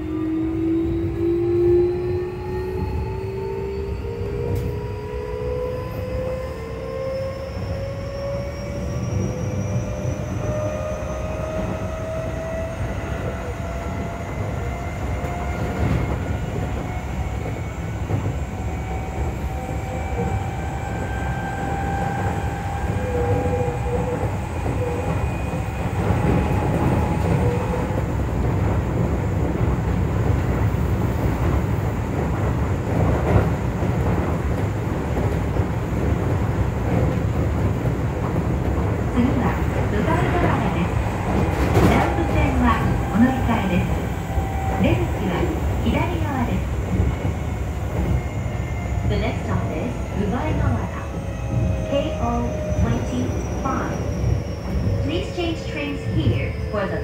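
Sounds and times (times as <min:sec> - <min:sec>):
wheels rumbling on rail: 0:00.0 - 0:57.0
train traction motors whining: 0:39.1 - 0:57.0.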